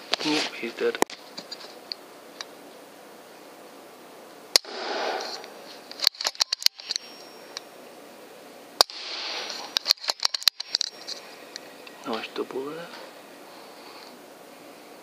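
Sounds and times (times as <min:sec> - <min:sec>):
air rifle shots: 0:04.6 - 0:06.8, 0:08.8 - 0:10.6
metallic clicks of rifle cycling: 0:05.9 - 0:07.6, 0:09.7 - 0:11.2.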